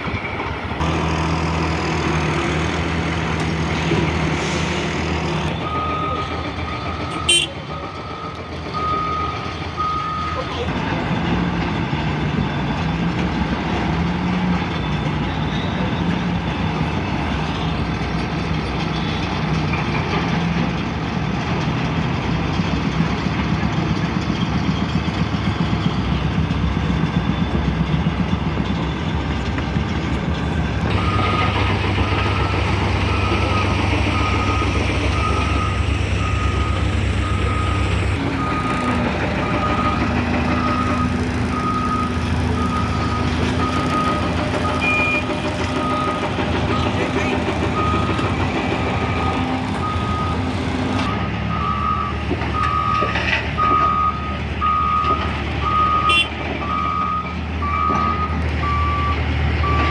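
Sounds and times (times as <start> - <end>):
heavy diesel engine running: 0.0 - 59.9
reversing alarm beeping: 5.4 - 10.7, 30.6 - 59.9.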